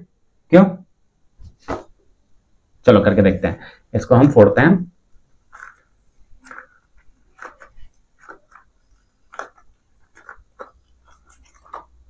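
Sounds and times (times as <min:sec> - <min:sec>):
plastic packet crinkling in balloon: 0:05.4 - 0:12.0.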